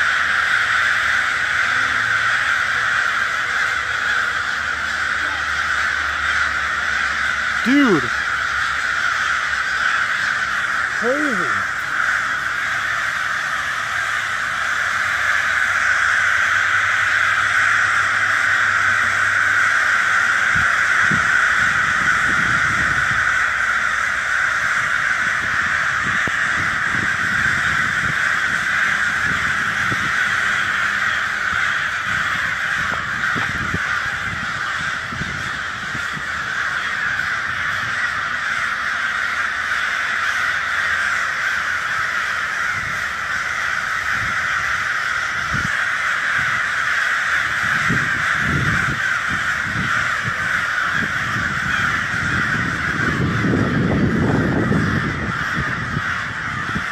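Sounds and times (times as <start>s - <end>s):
crows cawing: 0.0s - 56.9s.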